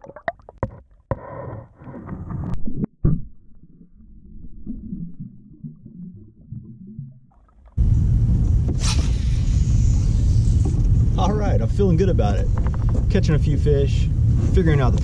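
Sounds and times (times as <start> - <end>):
water sloshing and bubbling: 0.0 - 8.0, 11.8 - 13.4
muffled underwater rumble: 1.7 - 15.0.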